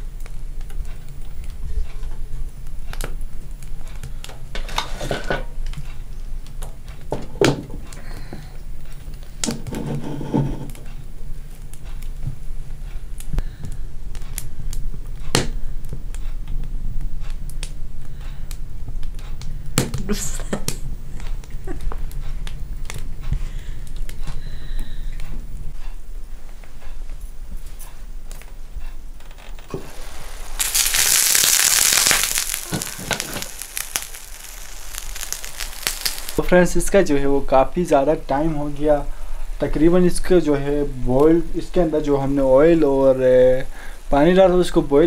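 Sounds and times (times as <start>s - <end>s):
loud sizzling hiss: 29.6s - 45.0s
oil crackling and snapping in pot: 29.7s - 36.4s.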